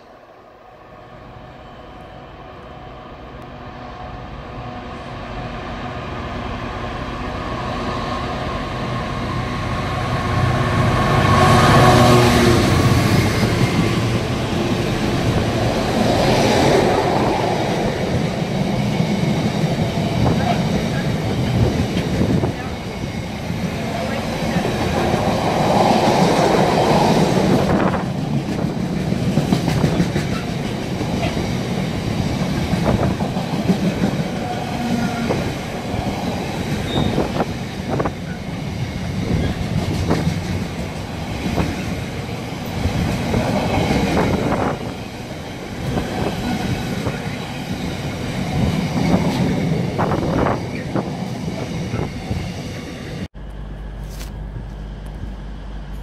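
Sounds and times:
train wheels rumbling on rails: 1.6s - 53.4s.

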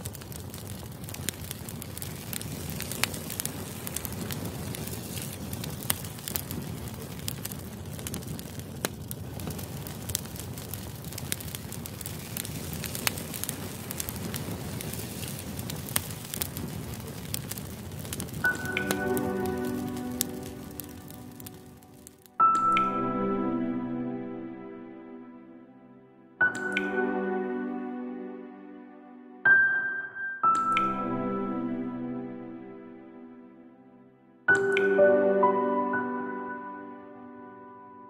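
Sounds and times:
logs crackling and popping: 0.0s - 23.2s, 26.4s - 27.2s, 30.4s - 31.9s, 34.5s - 35.1s
campfire hissing: 0.0s - 23.7s.

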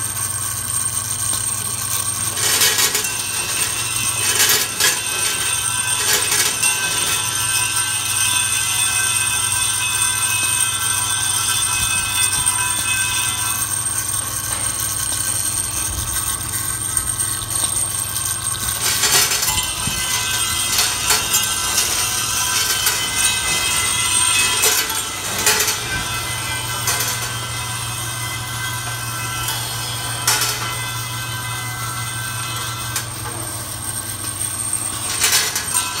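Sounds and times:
electric machine hum: 0.0s - 36.0s
metallic clicks of parts feeding: 13.6s - 27.5s, 32.9s - 36.0s.

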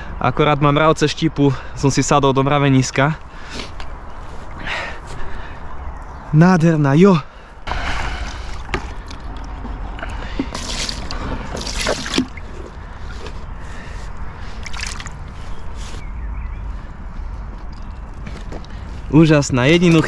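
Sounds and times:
water sloshing and splashing: 7.7s - 13.6s, 14.4s - 15.6s.

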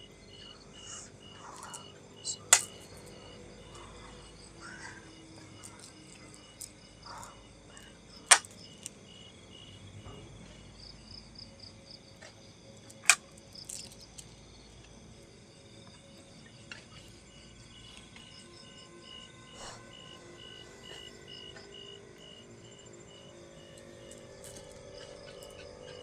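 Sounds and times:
crickets chirping: 0.0s - 26.0s
sharp loud clicks: 8.2s - 8.6s.

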